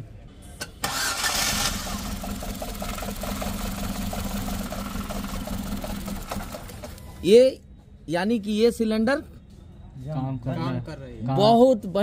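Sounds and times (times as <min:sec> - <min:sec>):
car engine starting and idling: 0:00.8 - 0:07.2.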